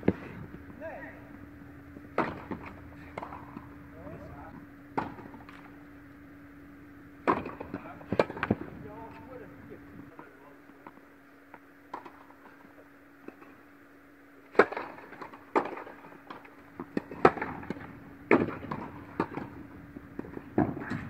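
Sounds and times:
racket striking ball: 0.0 - 4.3, 4.9 - 6.3, 7.1 - 8.7, 14.5 - 21.0
tennis ball bouncing: 0.0 - 8.7, 14.5 - 21.0
low hum: 0.0 - 21.0.

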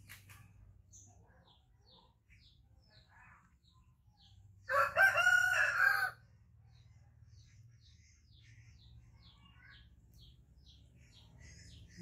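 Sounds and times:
small birds chirping: 0.0 - 12.0
rooster crowing: 4.7 - 6.2.

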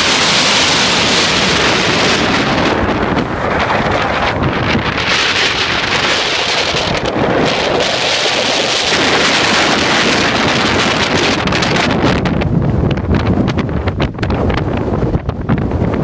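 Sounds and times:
surf breaking on rocks: 0.0 - 12.3
wind buffeting microphone: 0.0 - 16.0.

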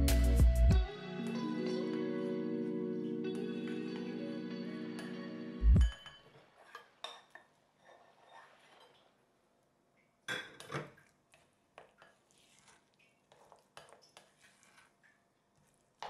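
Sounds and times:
spatula scraping glass bowl: 6.2 - 9.2, 12.0 - 15.0.

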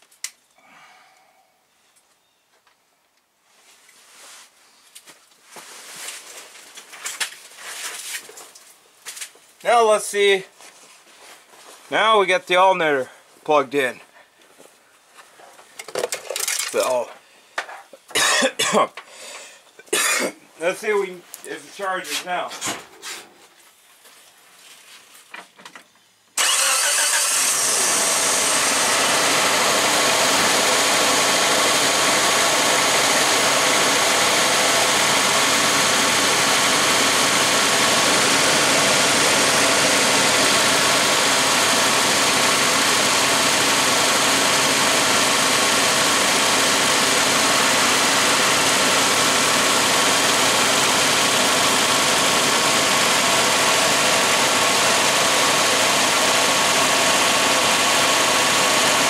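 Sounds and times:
car engine starting and idling: 26.4 - 59.0.

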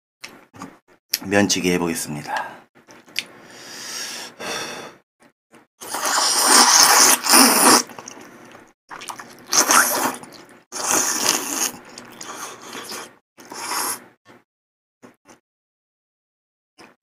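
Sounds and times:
slurping noodles: 5.8 - 14.1.

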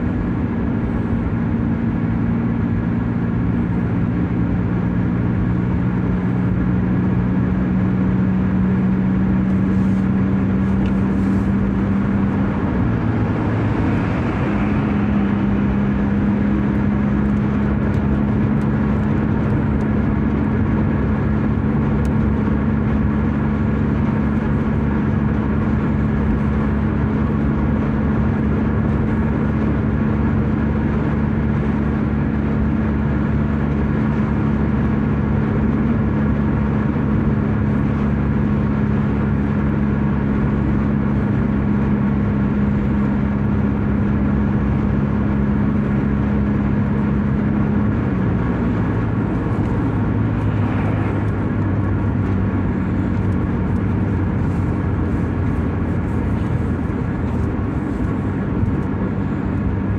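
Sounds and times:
road and engine noise in car: 0.0 - 59.9.

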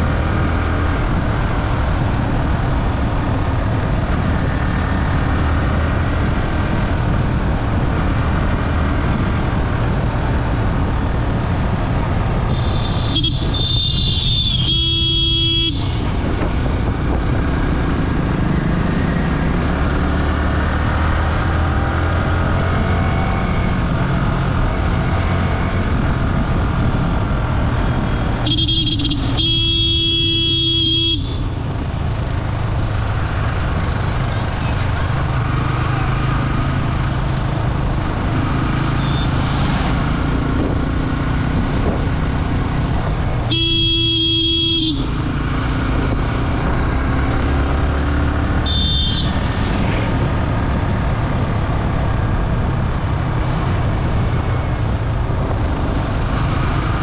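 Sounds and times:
vehicle horn honking: 12.5 - 16.1, 28.4 - 31.5, 39.0 - 39.3, 43.5 - 45.2, 48.6 - 49.7
wind rush: 15.8 - 19.4, 39.4 - 43.4.

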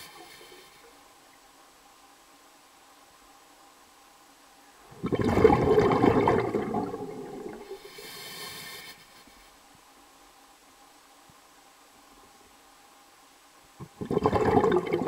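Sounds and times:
high hiss: 0.0 - 4.9, 7.4 - 13.9
water rushing: 4.9 - 7.9.

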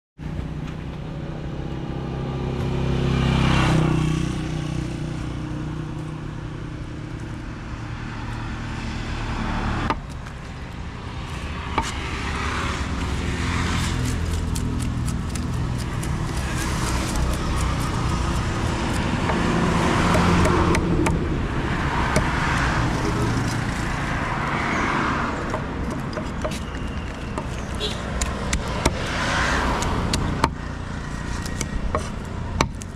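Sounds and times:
road traffic passing: 0.2 - 32.9
knife tapping and scraping on wood: 14.1 - 21.2, 25.4 - 29.1, 31.2 - 32.9.

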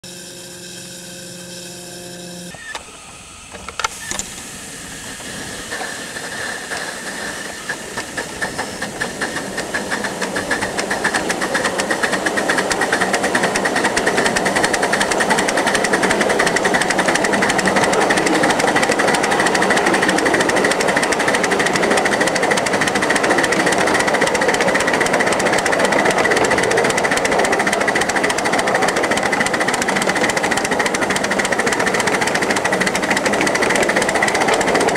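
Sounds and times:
short held tone: 0.0 - 4.3
steam locomotive exhaust chuffs: 0.0 - 34.9.

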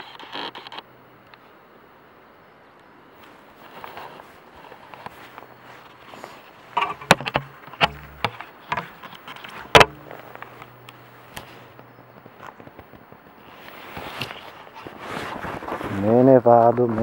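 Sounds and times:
sharp knocks and clicks: 6.8 - 11.0.

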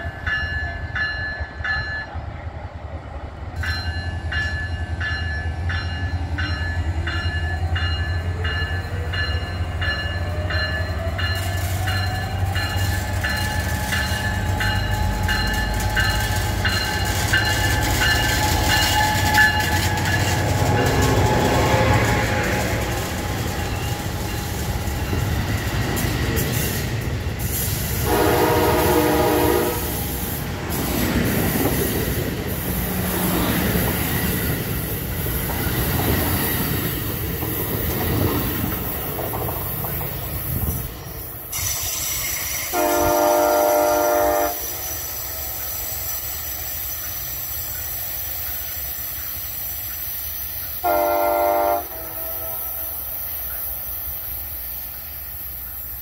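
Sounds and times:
train cars rolling past: 0.0 - 56.0
multi-tone train horn: 7.6 - 24.2, 27.9 - 30.4, 42.6 - 45.5, 50.8 - 53.1.

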